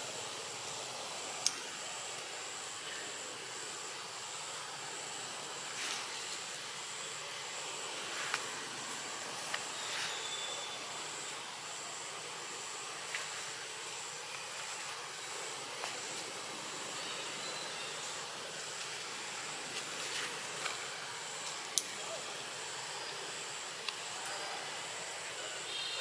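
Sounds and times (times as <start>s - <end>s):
background hiss: 0.0s - 26.0s
insect drone: 0.0s - 26.0s
faint clicks: 1.4s - 1.6s.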